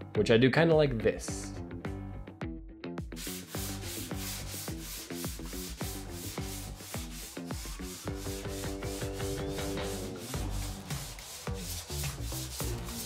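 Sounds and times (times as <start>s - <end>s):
background music: 0.0s - 13.0s
sandpaper rubbing on wood: 3.2s - 13.0s.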